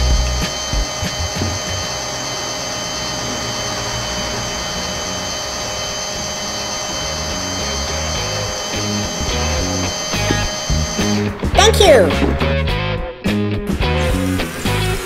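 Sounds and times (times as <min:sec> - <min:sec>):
electric winch motor whining: 0:00.0 - 0:11.6.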